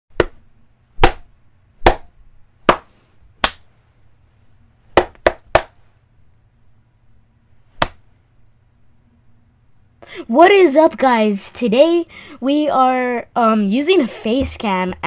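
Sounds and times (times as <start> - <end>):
person clapping hands: 2.7 - 3.6, 5.0 - 5.7.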